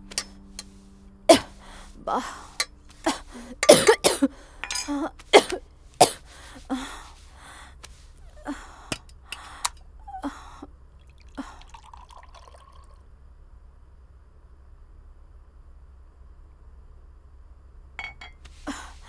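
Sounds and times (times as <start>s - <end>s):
person coughing: 1.3s - 1.6s, 3.1s - 6.2s.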